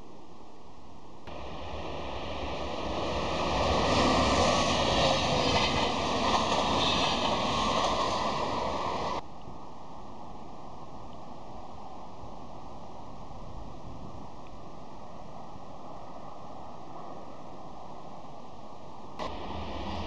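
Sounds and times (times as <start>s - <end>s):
train wheels rumbling on rails: 1.3s - 9.2s, 19.2s - 20.0s.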